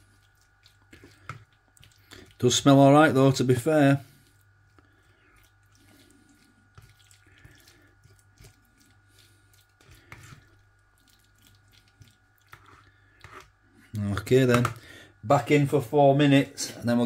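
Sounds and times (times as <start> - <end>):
fork stirring macaroni cheese: 0.0 - 13.6
low steady hum: 0.0 - 17.0.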